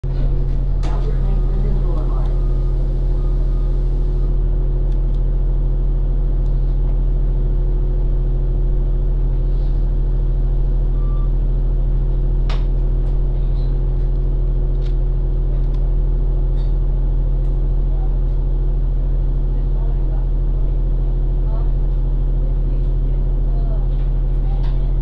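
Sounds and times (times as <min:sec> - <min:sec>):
bus engine idling drone: 0:00.0 - 0:24.6
faint beep: 0:01.2 - 0:04.3, 0:11.0 - 0:11.3.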